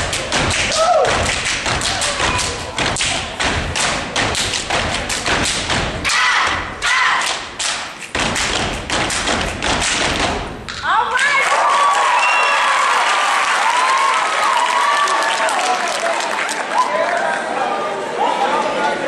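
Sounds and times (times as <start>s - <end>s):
hand claps: 0.0s - 6.0s, 7.2s - 11.6s
foot stomps on wooden stage: 0.0s - 10.9s.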